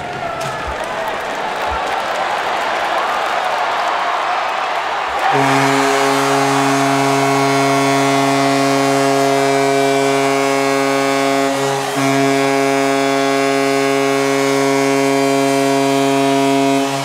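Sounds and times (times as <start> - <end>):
goal horn blast: 5.1 - 17.0.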